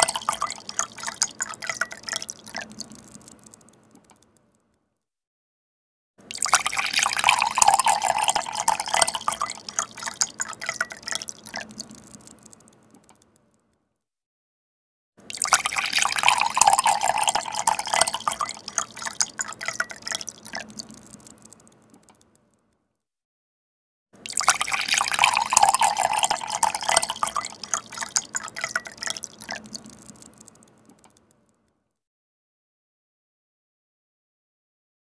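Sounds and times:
water pouring into a glass: 0.0 - 4.2, 6.3 - 12.8, 15.3 - 22.2, 24.3 - 31.1.

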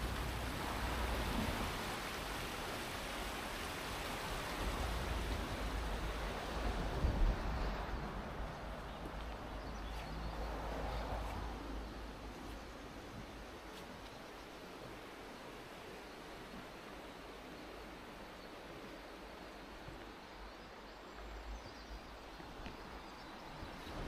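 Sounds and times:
wind buffeting microphone: 0.0 - 12.4, 22.4 - 24.0.

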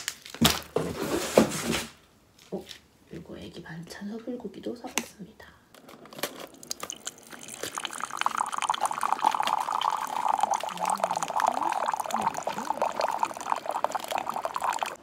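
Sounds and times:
water pouring: 6.1 - 15.0.

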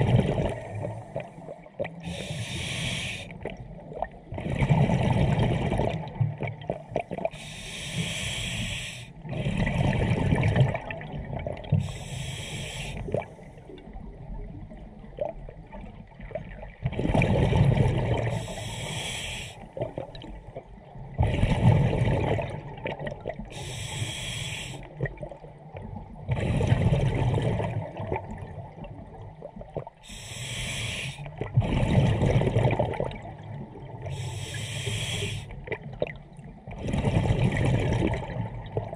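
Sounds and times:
diver breathing through regulator: 0.8 - 3.4, 7.3 - 9.8, 11.8 - 13.6, 18.3 - 19.8, 23.5 - 24.9, 30.0 - 32.1, 34.1 - 35.6.

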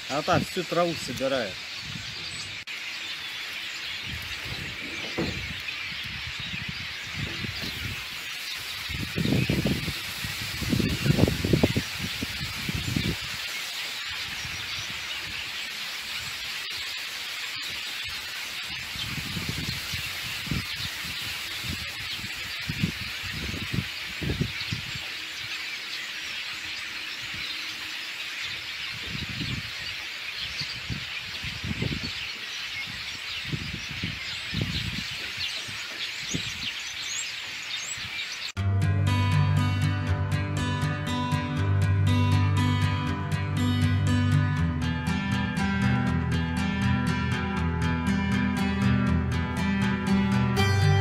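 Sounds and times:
wind hiss over water: 0.0 - 38.6
wind gusts buffeting microphone: 1.8 - 2.6, 4.0 - 13.4, 18.7 - 25.0, 28.9 - 29.9, 30.5 - 36.8.

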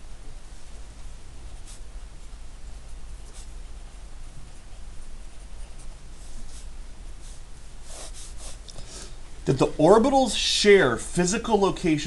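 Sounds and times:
pencil scratching on paper: 1.4 - 8.7.

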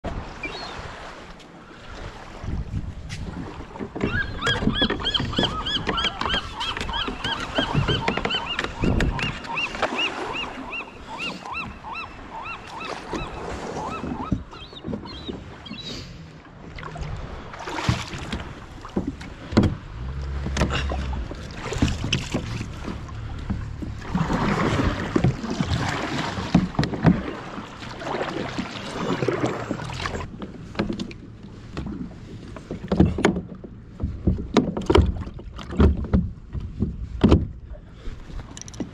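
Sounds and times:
paddle strokes: 0.0 - 38.9
water swishing against hull: 0.0 - 38.9
knocks on kayak hull: 17.8 - 19.8, 34.1 - 37.6.

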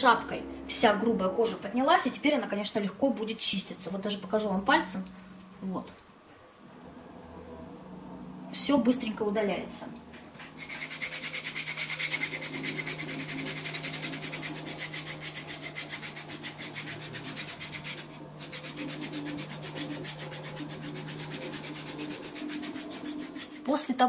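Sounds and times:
foot file rasping on heel: 10.6 - 23.7.

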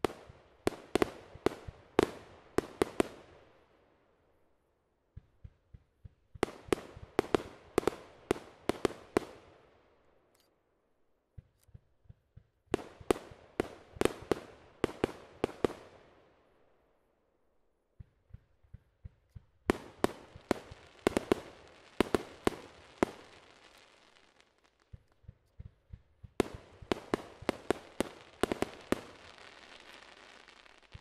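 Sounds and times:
fireworks bangs echoing: 5.1 - 9.5, 12.1 - 16.0, 18.0 - 31.0.

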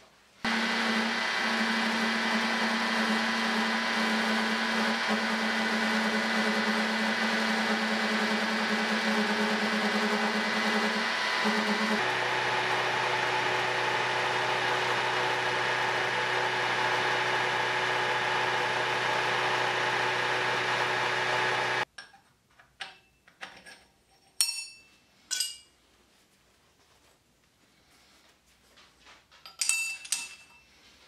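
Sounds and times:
milling machine running: 0.5 - 21.8
metallic clinks of steel parts: 22.8 - 25.7, 29.4 - 30.8.

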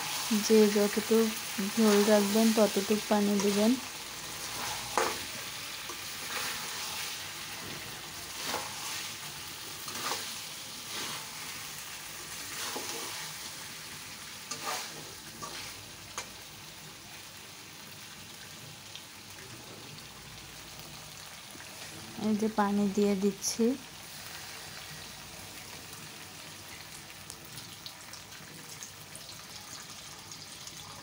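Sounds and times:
curry sizzling in a pan: 0.0 - 31.0
spatula scraping a pan: 4.3 - 11.6, 12.3 - 13.5, 14.4 - 16.3.

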